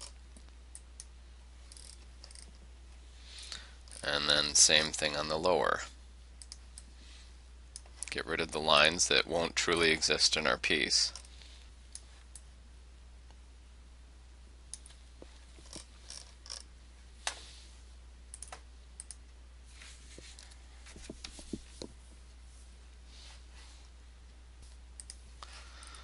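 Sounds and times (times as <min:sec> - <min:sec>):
steady low hum: 0:00.0 - 0:26.0
computer mouse and keyboard clicks: 0:01.7 - 0:02.6.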